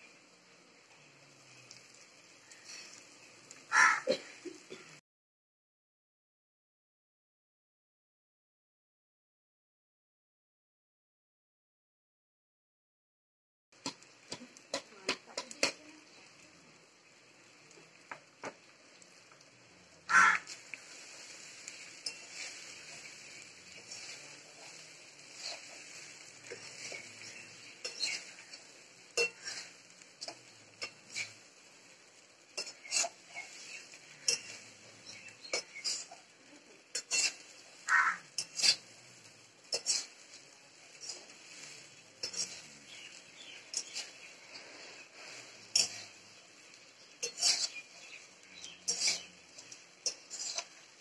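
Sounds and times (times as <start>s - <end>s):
metal spoon scraping a pot: 20.1s - 31.5s, 32.6s - 36.3s, 36.9s - 50.9s.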